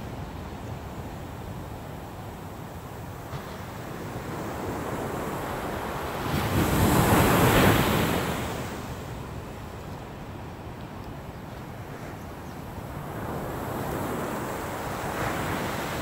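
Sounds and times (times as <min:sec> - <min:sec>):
surf washing: 0:00.0 - 0:16.0
wave crashing on beach: 0:03.2 - 0:09.2, 0:12.8 - 0:16.0.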